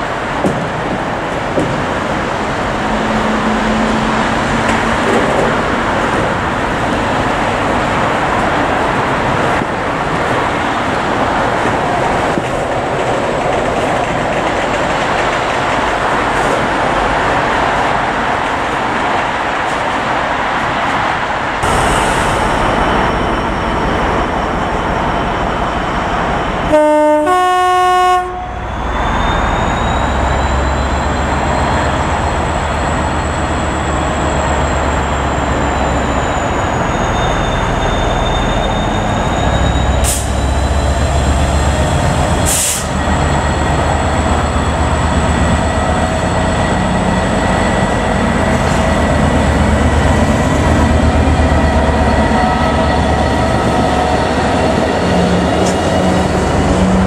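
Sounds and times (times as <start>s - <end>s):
diesel locomotive engine: 0.0s - 57.0s
two-tone locomotive horn: 2.8s - 4.9s, 26.7s - 28.7s.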